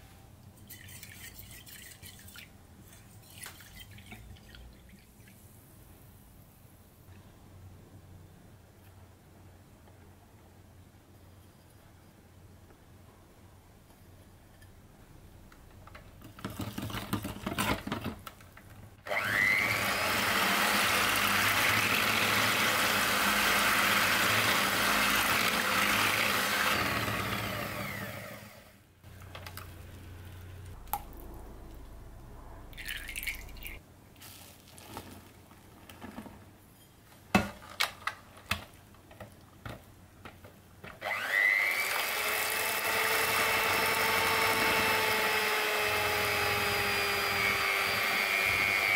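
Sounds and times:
electric hand mixer whining: 0:19.1 - 0:28.7, 0:41.0 - 0:48.9.

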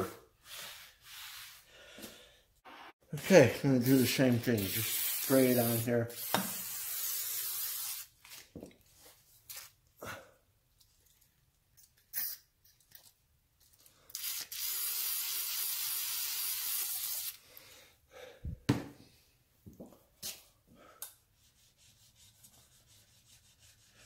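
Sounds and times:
aerosol can spraying hiss: 0:03.9 - 0:08.1.

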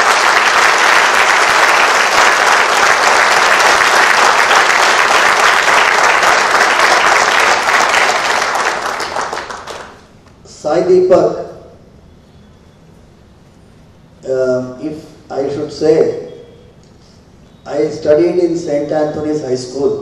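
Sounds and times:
audience applause: 0:00.0 - 0:10.1.

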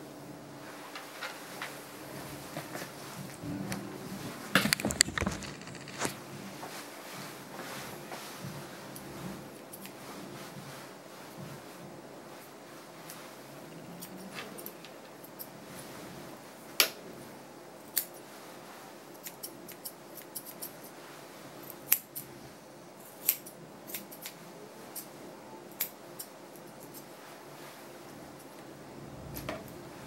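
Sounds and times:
shears snipping dog fur: 0:06.1 - 0:11.7, 0:12.3 - 0:16.0, 0:19.1 - 0:21.0, 0:23.0 - 0:28.6.

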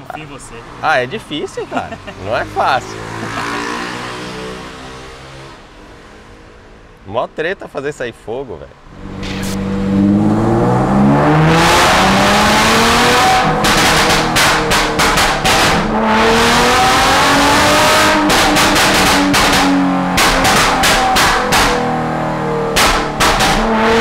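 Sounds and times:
car engine revving hard: 0:01.7 - 0:05.7, 0:08.8 - 0:24.0
exhaust pops and crackles: 0:13.2 - 0:16.0, 0:18.0 - 0:22.0, 0:22.7 - 0:24.0.

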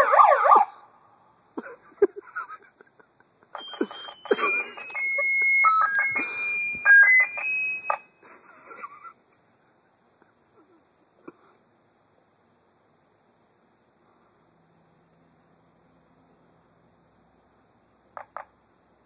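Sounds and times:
electronic beeps changing pitch: 0:03.6 - 0:08.2.

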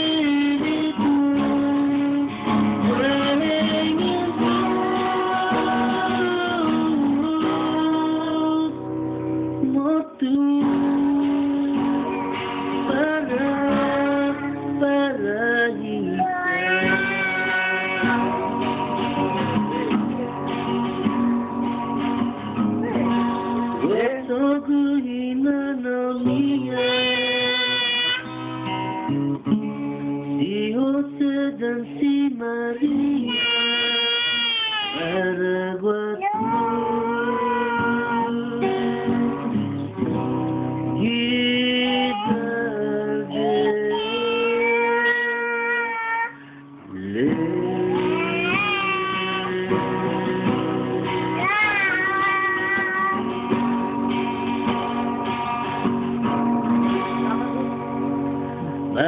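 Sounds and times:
man and child singing: 0:00.0 - 0:08.9, 0:09.6 - 0:19.2, 0:23.8 - 0:28.4, 0:30.4 - 0:39.5, 0:41.0 - 0:53.6
acoustic guitar strumming: 0:00.0 - 0:59.0.

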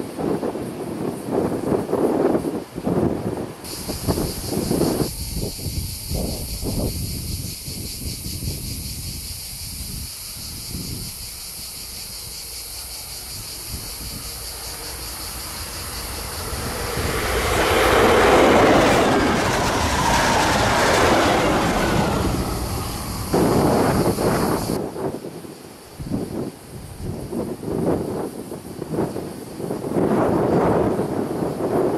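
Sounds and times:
train passing: 0:03.4 - 0:05.6, 0:11.2 - 0:24.8.

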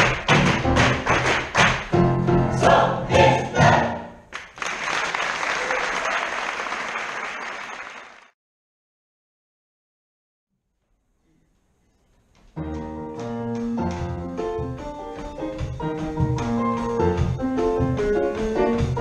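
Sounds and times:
choir singing with piano and drums: 0:00.2 - 0:04.3
audience applause: 0:04.3 - 0:08.4.

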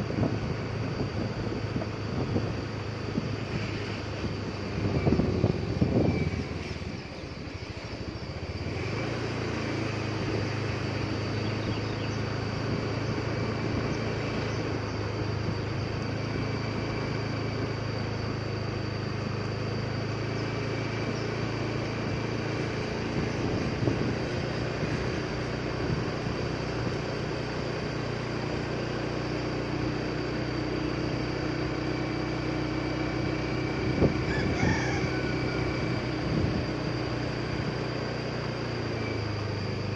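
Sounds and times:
wind buffeting microphone: 0:00.0 - 0:07.5, 0:23.0 - 0:25.0
tyre and road noise: 0:00.0 - 0:39.9
vehicle engine running: 0:00.0 - 0:39.9.

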